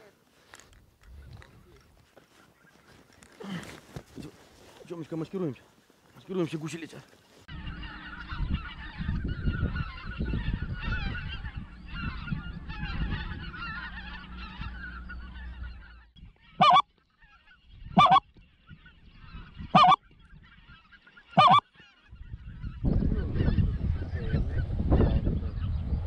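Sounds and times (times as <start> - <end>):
geese honking: 7.5 - 25.8.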